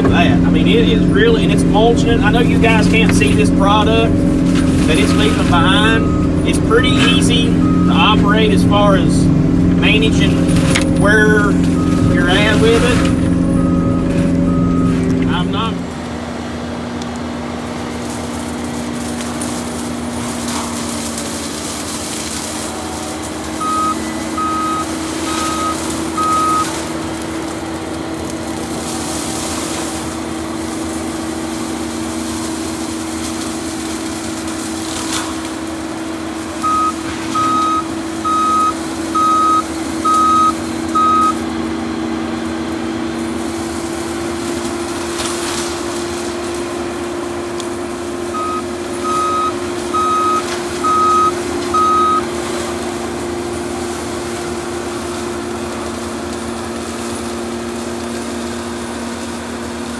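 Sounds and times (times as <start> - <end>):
track loader machine hum: 0.0 - 59.9
backup alarm beeps: 5.0 - 8.2, 11.3 - 15.0, 23.6 - 26.8, 36.6 - 41.4, 48.3 - 52.3.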